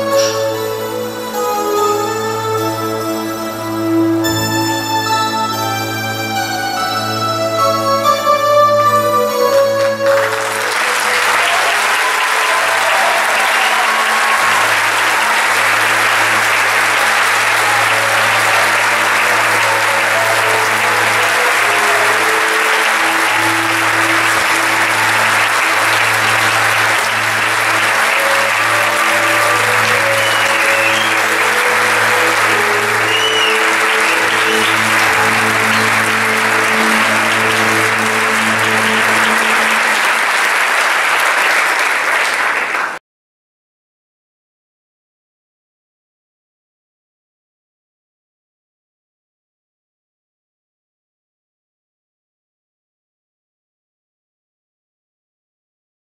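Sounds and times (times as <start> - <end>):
orchestra closing music: 0.0 - 42.8
audience applauding: 9.5 - 43.0
person singing: 26.0 - 39.8.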